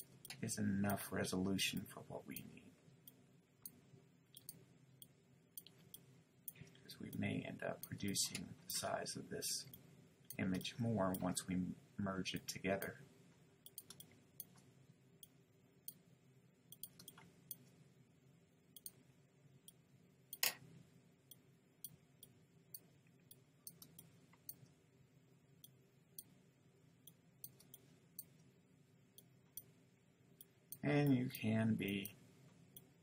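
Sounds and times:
faint room hum: 0.0 - 33.0
computer mouse clicks: 3.1 - 7.2, 13.6 - 14.6, 16.7 - 17.7, 18.8 - 19.0, 21.3 - 24.7, 27.1 - 28.5.

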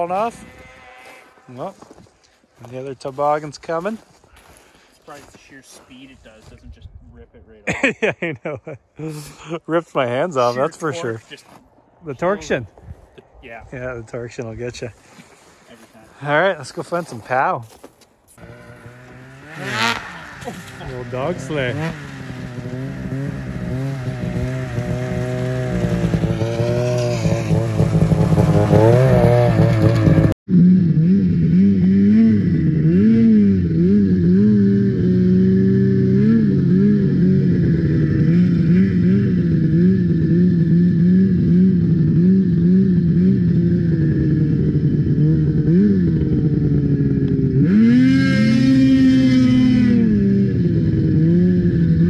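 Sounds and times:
snowmobile engine running: 10.3 - 11.4, 18.4 - 52.0.

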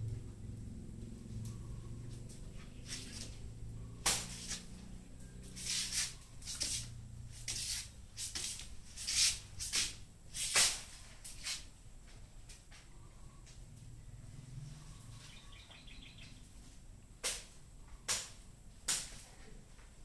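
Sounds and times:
low steady hum: 0.0 - 20.0
broom sweeping concrete floor: 2.6 - 11.8.

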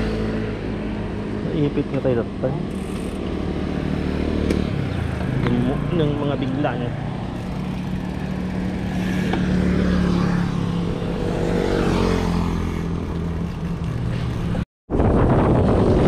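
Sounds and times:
vehicle engine humming: 0.0 - 14.6
wind rushing on microphone: 14.9 - 16.0.

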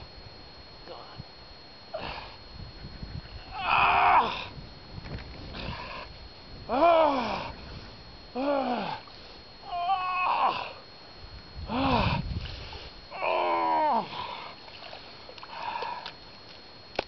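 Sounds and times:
man groaning with effort: 1.9 - 2.4, 3.5 - 4.5, 6.7 - 7.5, 8.3 - 10.8, 11.7 - 12.2, 13.1 - 14.5.

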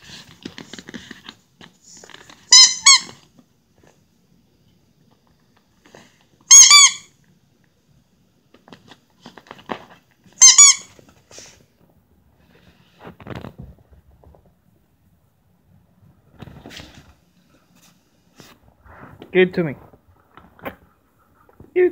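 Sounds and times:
squeaky toy squeaking: 2.5 - 3.2, 6.5 - 7.1, 10.4 - 11.0.

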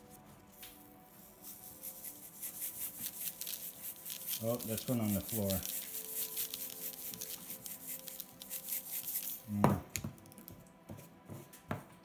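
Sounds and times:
sprinkles rattling from shaker: 1.2 - 9.5.

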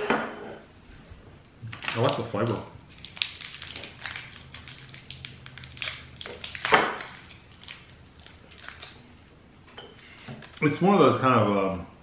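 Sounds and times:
plastic wrapper crackling: 1.8 - 9.1.

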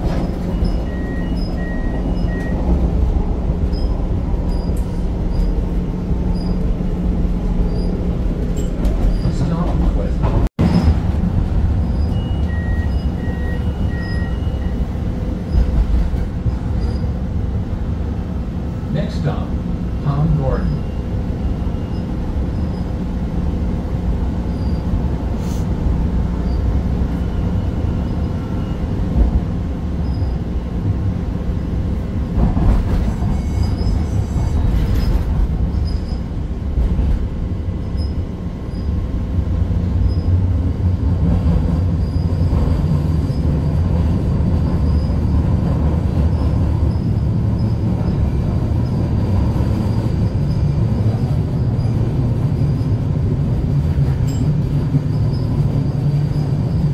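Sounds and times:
train wheels rumbling on rail: 0.0 - 56.9
high wheel squeals: 0.1 - 2.6, 6.2 - 6.6, 7.6 - 9.4, 11.8 - 15.7, 16.7 - 17.2, 20.6 - 23.0, 24.4 - 25.6, 30.0 - 30.5, 33.1 - 36.3, 41.9 - 43.8, 44.8 - 45.6, 46.3 - 53.1, 54.2 - 56.9.

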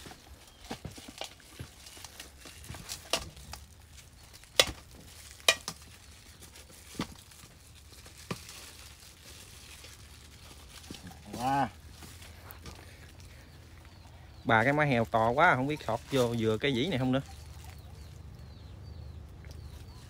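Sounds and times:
clicks and knocks of meat on skewer: 4.4 - 5.9.

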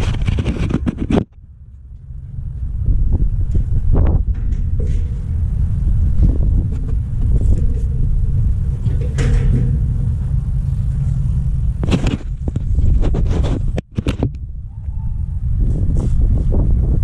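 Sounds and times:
hands scraping brick wall: 0.0 - 1.3, 10.8 - 14.1
wind buffeting microphone: 0.0 - 17.0.

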